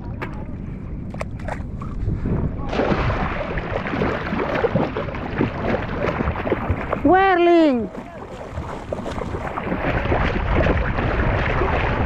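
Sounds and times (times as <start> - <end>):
low rumble: 0.0 - 12.0
seawater splashing: 2.6 - 12.0.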